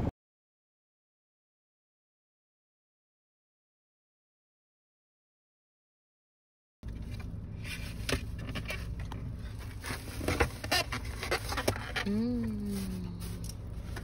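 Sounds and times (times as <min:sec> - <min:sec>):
foam container clicks and rustles: 0:06.9 - 0:12.1
person humming: 0:12.0 - 0:13.6.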